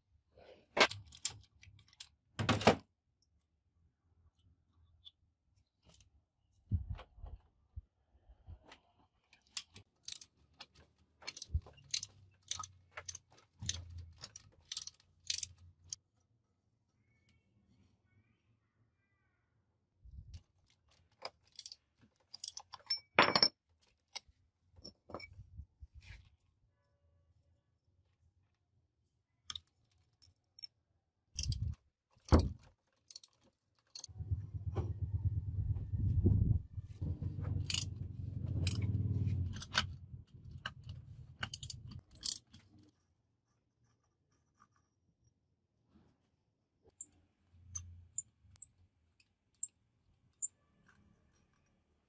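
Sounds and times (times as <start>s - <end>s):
ratchet wrench clicking: 31.4s - 31.7s, 41.4s - 42.4s.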